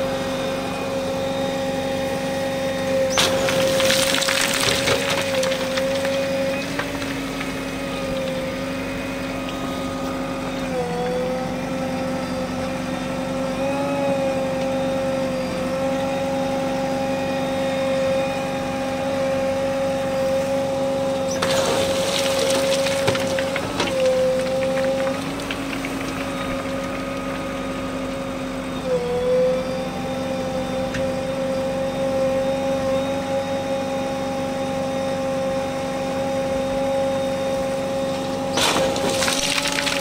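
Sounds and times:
backhoe engine and hydraulics whine: 0.0 - 40.0
stones clattering from bucket: 3.1 - 7.6, 21.3 - 26.3, 38.6 - 40.0.

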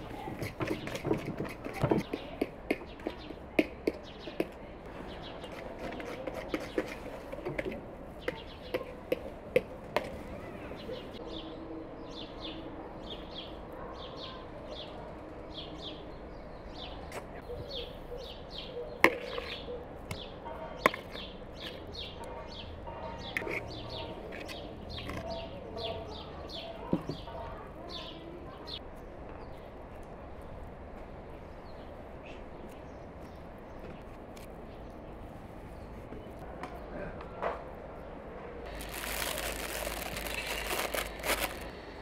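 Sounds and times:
small birds chirping: 0.0 - 30.7, 31.4 - 36.9, 38.0 - 42.0
sharp taps and knocks: 0.3 - 4.6.

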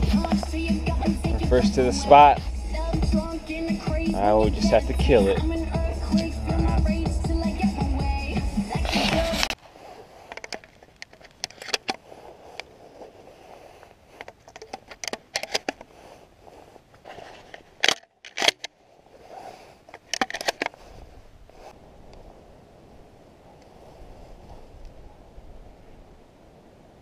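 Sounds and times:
music: 0.0 - 9.5
clothing and gear rustling: 0.0 - 22.5
clicks and scrapes: 8.7 - 21.0.

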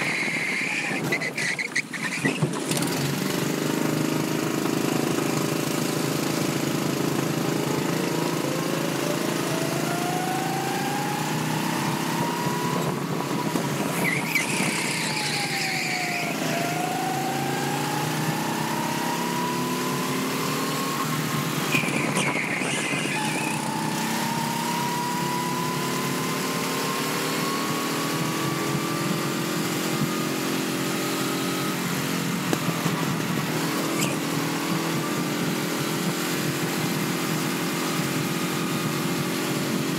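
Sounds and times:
go-kart engine accelerating: 0.0 - 39.9
short high-pitched squeals: 13.4 - 16.7, 20.8 - 23.9.

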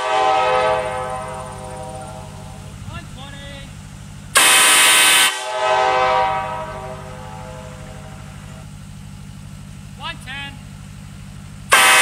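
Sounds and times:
locomotive air horn: 0.0 - 2.9, 4.3 - 8.8, 11.6 - 12.0
low hum: 0.0 - 12.0.

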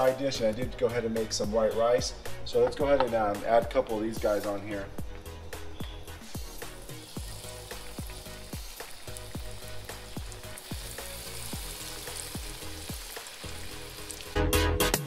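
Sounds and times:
fish sizzling in oil: 6.0 - 14.6
loud music: 14.3 - 15.0.

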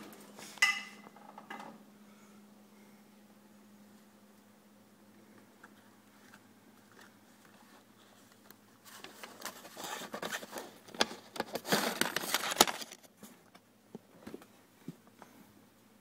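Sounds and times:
papers rustling in a drawer: 6.2 - 13.5.

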